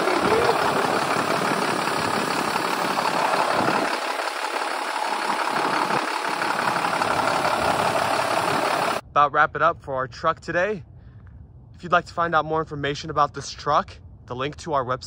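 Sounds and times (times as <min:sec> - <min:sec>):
diesel engine idling: 0:00.0 - 0:09.0.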